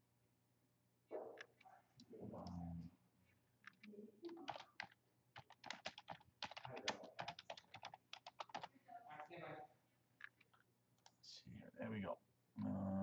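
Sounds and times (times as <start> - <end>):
keyboard typing clicks: 3.6 - 8.7.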